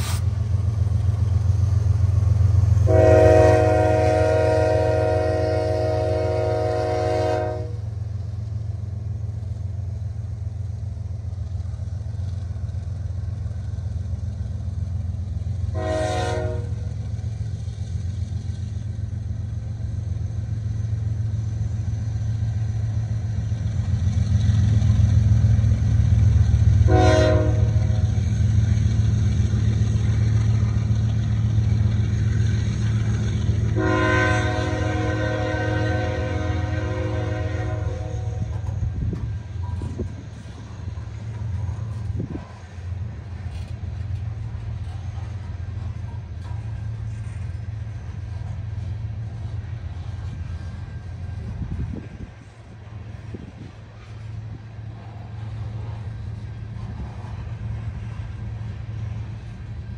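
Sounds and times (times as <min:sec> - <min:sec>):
diesel locomotives rumbling: 0:00.0 - 0:59.9
train air horn blasts: 0:02.8 - 0:07.9, 0:15.7 - 0:17.0, 0:26.8 - 0:28.0, 0:33.8 - 0:38.8.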